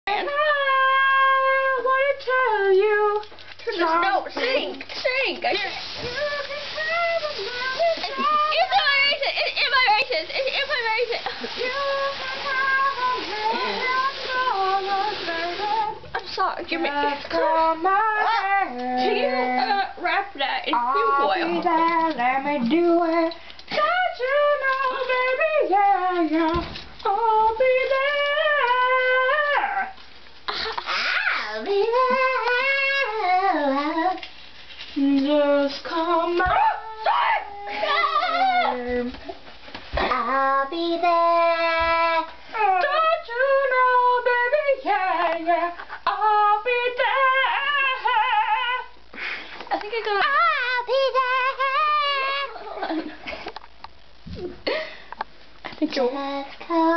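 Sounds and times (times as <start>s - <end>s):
woman singing: 0.1s - 30.0s, 31.3s - 34.3s, 35.0s - 39.4s, 40.0s - 49.0s, 49.7s - 53.1s, 55.7s - 56.9s.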